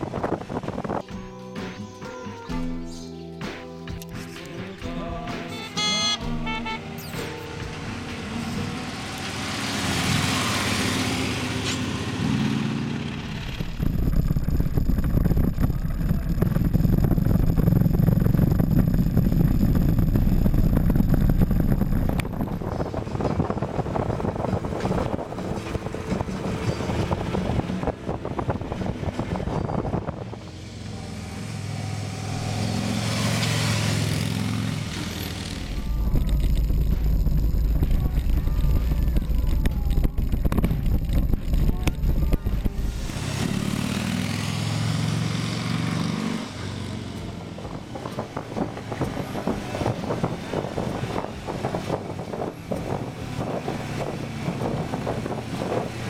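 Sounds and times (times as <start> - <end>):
motorcycles passing by: 6.0 - 13.9, 22.4 - 37.3, 40.7 - 56.0
steady motorcycle engine rumble: 12.9 - 31.7, 34.3 - 43.9.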